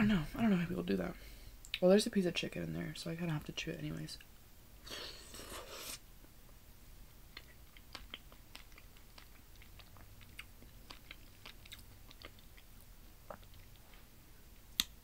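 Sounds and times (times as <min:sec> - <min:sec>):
wet chewing mouth clicks: 0:07.4 - 0:14.0.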